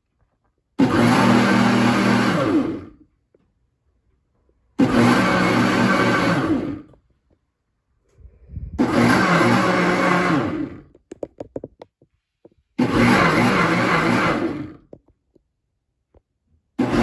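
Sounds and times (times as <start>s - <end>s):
blender motor blending liquid: 0.8s - 3.0s, 4.8s - 6.9s, 8.8s - 10.9s, 12.8s - 14.9s, 16.8s - 17.0s.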